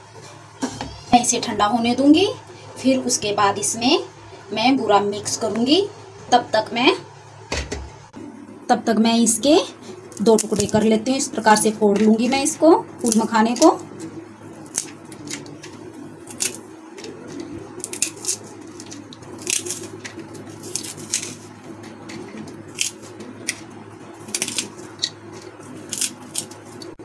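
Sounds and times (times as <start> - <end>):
steady low hum: 0.0 - 27.0
nuts crunching by hand: 16.3 - 16.6, 17.8 - 21.5, 22.1 - 26.9.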